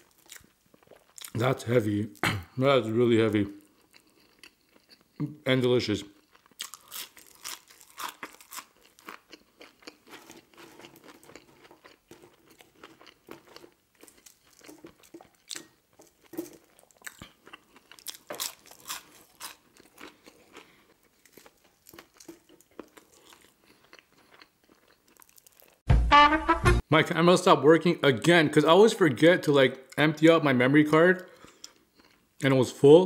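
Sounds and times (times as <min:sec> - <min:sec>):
person chewing fries: 0:00.0 - 0:01.4, 0:03.6 - 0:05.3, 0:06.1 - 0:25.8, 0:31.2 - 0:32.4.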